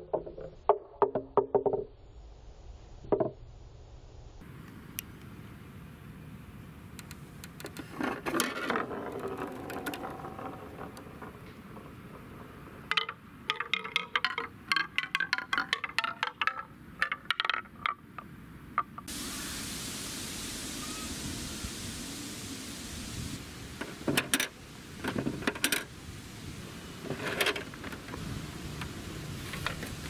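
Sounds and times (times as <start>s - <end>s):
ball clacking down wooden steps: 0.0s - 1.8s, 7.6s - 19.1s
outdoor noise hiss: 0.0s - 30.0s.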